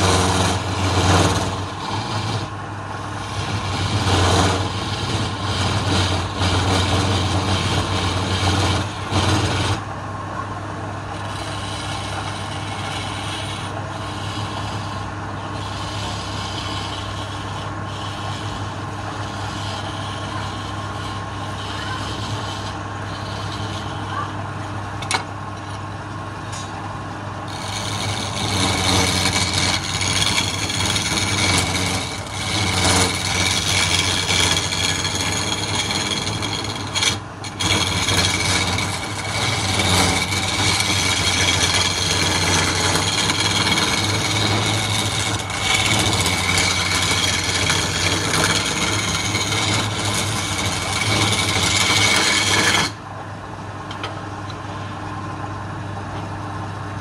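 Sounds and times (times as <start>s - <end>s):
wood lathe humming: 0.0s - 25.8s, 26.8s - 53.1s
chisel scraping spinning wood: 0.0s - 53.1s.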